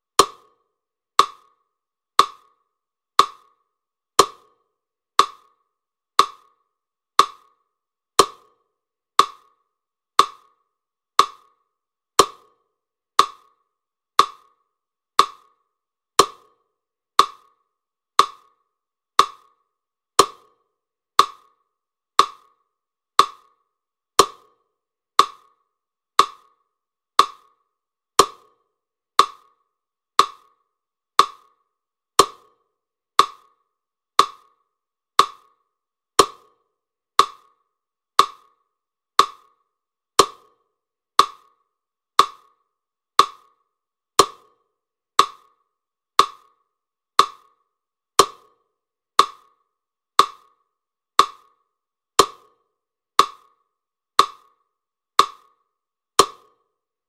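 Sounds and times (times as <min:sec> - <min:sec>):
woody clock ticking: 0:00.0 - 0:53.6, 0:54.2 - 0:55.6, 0:56.2 - 0:56.7.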